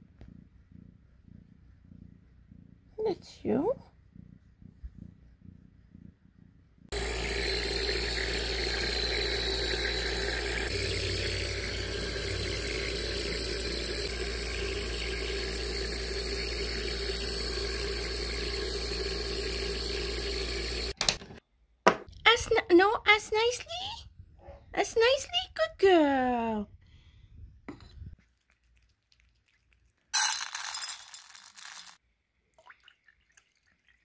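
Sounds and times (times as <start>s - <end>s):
air compressor humming and hissing: 6.9s - 21.0s.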